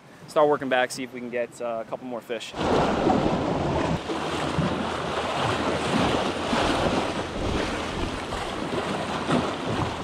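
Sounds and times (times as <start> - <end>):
waves splashing against rocks: 2.5 - 10.0
wind buffeting microphone: 2.6 - 10.0.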